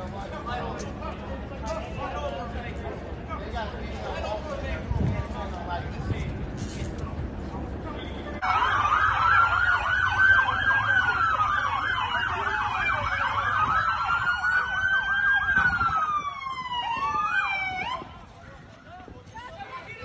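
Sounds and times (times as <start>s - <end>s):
fast yelping siren: 8.4s - 18.2s
police siren wailing: 8.4s - 18.4s.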